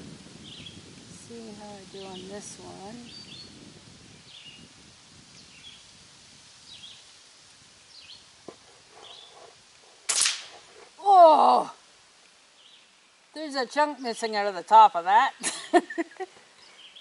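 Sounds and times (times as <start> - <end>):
birds chirping: 1.8 - 3.6, 4.2 - 4.7, 7.9 - 11.6, 12.5 - 14.6, 15.9 - 17.0
air rifle firing: 10.1 - 10.6.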